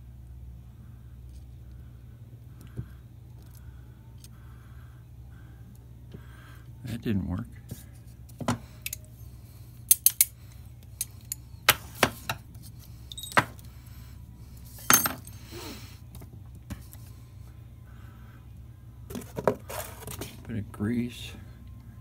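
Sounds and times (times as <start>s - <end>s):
steel parts clinking: 9.8s - 11.5s, 13.0s - 13.7s, 14.6s - 15.5s.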